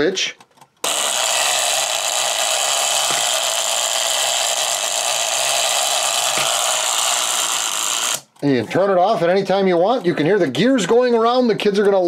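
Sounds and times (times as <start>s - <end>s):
plastic gears whirring: 0.6s - 8.6s.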